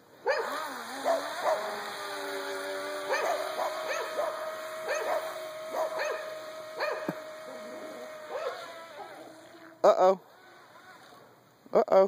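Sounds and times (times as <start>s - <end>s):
dog barking: 0.2s - 1.6s, 3.1s - 7.1s, 8.3s - 8.6s.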